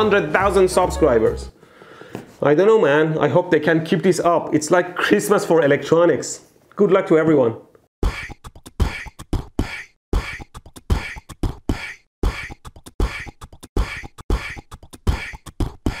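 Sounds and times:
beatbox beat: 0:08.0 - 0:16.0.

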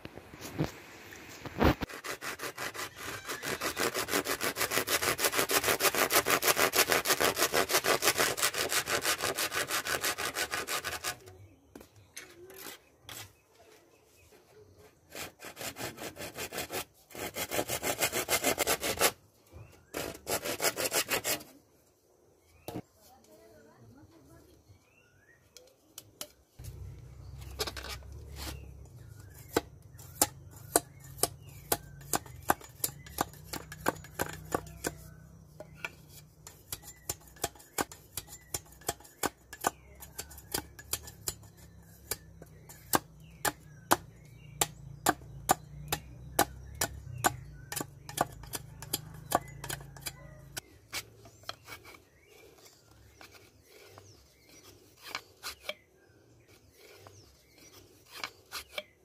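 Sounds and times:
machete chopping wood: 0:42.9 - 0:49.8.

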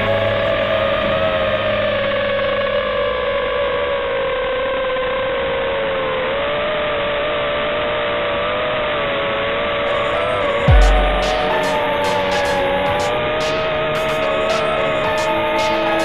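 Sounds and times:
quadcopter motors whining: 0:00.0 - 0:16.0.

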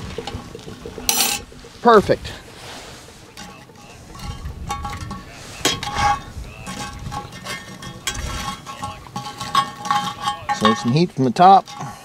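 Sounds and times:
metal tongs clinking on pot lid: 0:01.1 - 0:01.4, 0:04.2 - 0:12.0.

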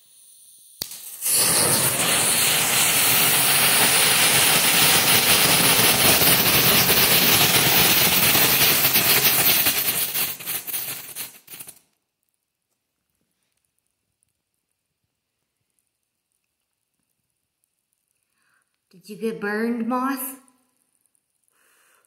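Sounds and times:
fireworks fizzing and crackling: 0:00.0 - 0:11.8.

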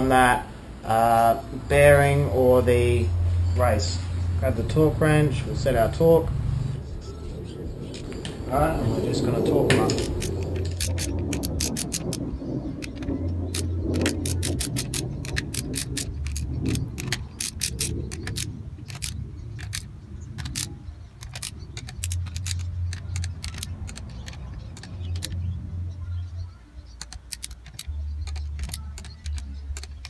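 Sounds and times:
low hum: 0:00.0 - 0:30.0
ratcheting torque wrench clicking: 0:09.8 - 0:12.2, 0:12.8 - 0:25.4, 0:27.0 - 0:30.0.

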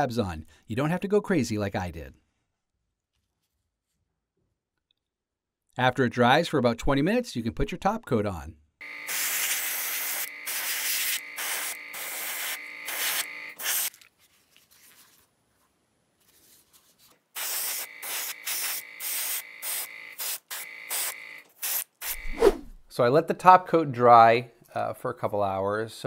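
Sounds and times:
airbrush spraying hiss: 0:09.1 - 0:13.9, 0:17.4 - 0:22.5.

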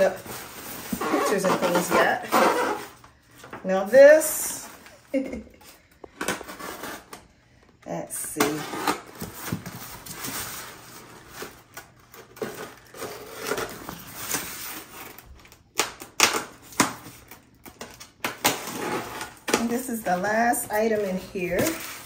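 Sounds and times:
foam box rustling and scraping: 0:00.0 - 0:03.1, 0:06.3 - 0:07.2.

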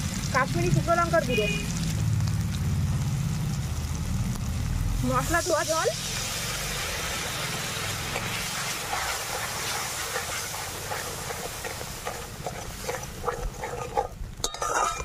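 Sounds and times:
spices sizzling in hot oil: 0:00.0 - 0:15.0
crackles and clicks: 0:01.6 - 0:05.1.

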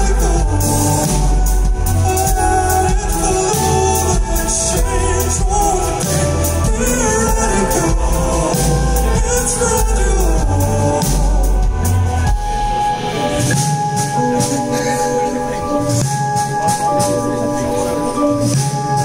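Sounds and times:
heavy pulsing bass: 0:00.0 - 0:13.9
person singing: 0:00.0 - 0:19.0
rock band playing live: 0:00.0 - 0:19.0.

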